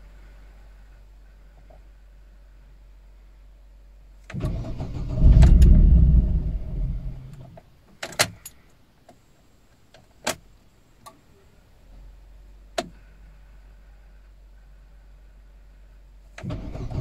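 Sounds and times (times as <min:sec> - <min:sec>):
car engine starting: 0:04.2 - 0:07.6, 0:16.4 - 0:17.0.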